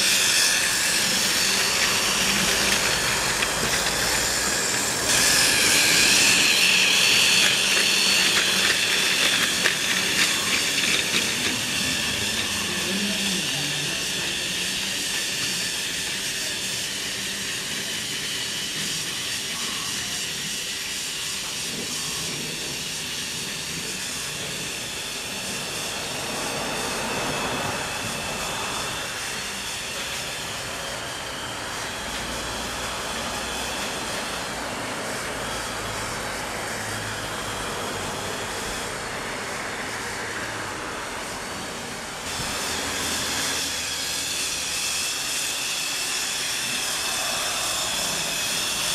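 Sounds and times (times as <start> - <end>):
wheels rattling on plastic track: 0.0 - 25.6
toy train motor whirring: 0.0 - 48.9.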